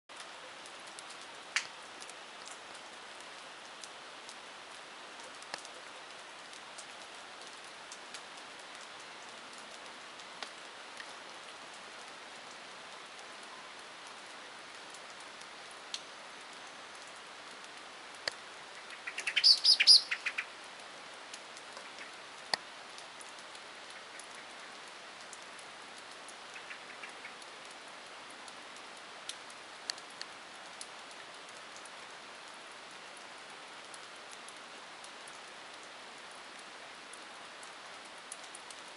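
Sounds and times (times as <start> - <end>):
rain hiss: 0.1 - 38.9
raindrops ticking: 0.1 - 38.9
bird chattering: 18.9 - 20.4
faint bird call: 18.9 - 20.5.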